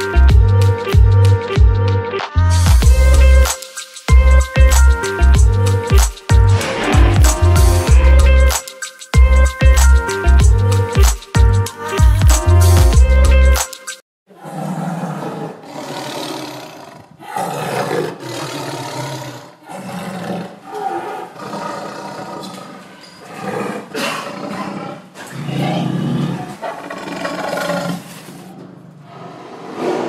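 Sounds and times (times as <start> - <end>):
tiger roaring: 14.3 - 30.0.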